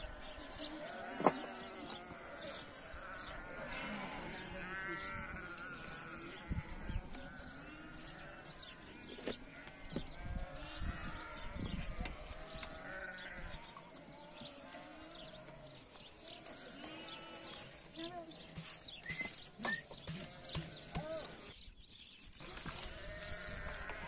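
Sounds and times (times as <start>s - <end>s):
sheep bleating: 0.1s - 8.8s, 9.5s - 18.2s, 22.8s - 24.0s.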